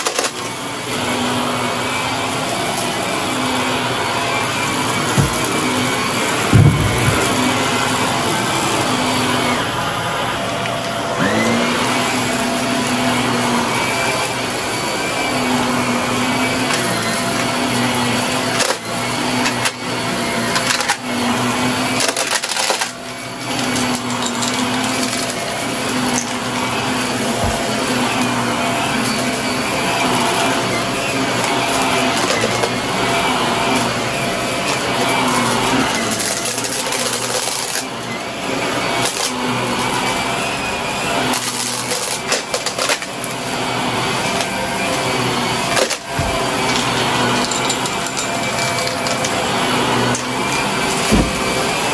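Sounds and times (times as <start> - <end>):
vacuum cleaner running: 0.0 - 51.9
debris crunching in vacuum: 4.3 - 9.4.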